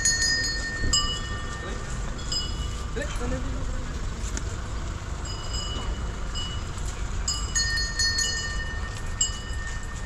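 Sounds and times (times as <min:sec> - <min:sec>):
brass bell ringing: 0:00.0 - 0:02.9, 0:07.3 - 0:10.0.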